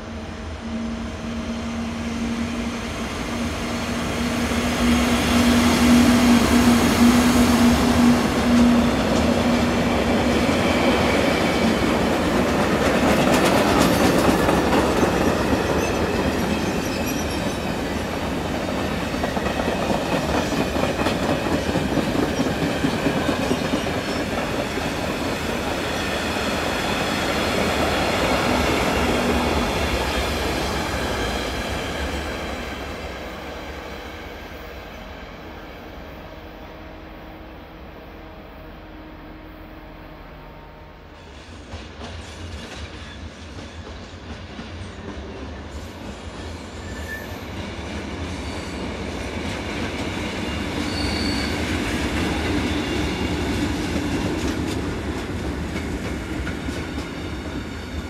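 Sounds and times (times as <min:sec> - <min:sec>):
electric locomotive hum: 0:00.0 - 0:41.3
train wheel squeal: 0:00.6 - 0:33.0, 0:41.1 - 0:54.6, 0:55.8 - 0:58.0.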